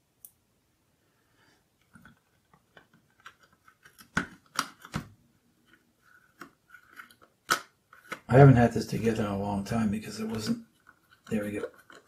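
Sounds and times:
small screws and plastic parts clicking: 10.7s - 12.0s.

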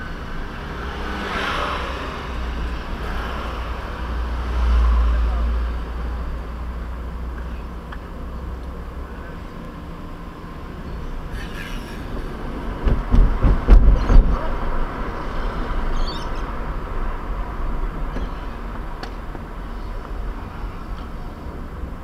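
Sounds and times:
car road and engine noise: 0.0s - 22.0s
heavy low thumping: 12.5s - 14.5s.

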